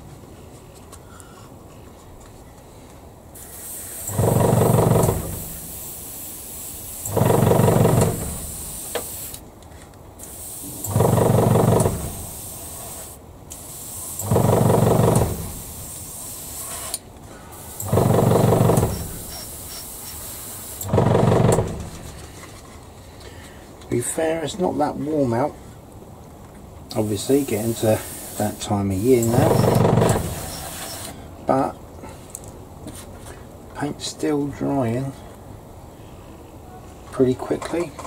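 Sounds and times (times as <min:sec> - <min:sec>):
airbrush spraying hiss: 0:03.4 - 0:09.4, 0:10.2 - 0:20.9, 0:26.9 - 0:31.1
compressor motor running: 0:03.9 - 0:09.4, 0:10.3 - 0:13.0, 0:13.9 - 0:16.8, 0:17.6 - 0:19.8, 0:20.4 - 0:22.1, 0:27.0 - 0:31.1.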